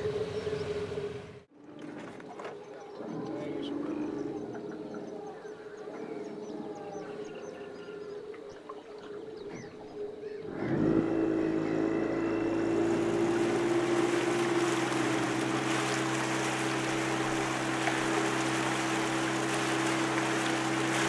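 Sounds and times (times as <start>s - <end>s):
water rushing: 8.2s - 21.0s
outboard motor running: 10.3s - 21.0s.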